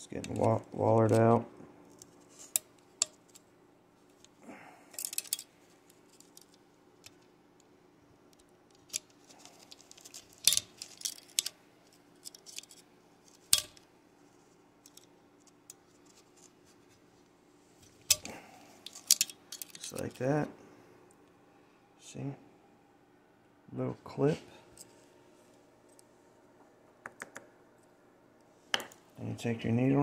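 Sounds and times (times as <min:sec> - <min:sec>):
pick scraping metal clip: 0:08.7 - 0:13.8, 0:17.8 - 0:20.2.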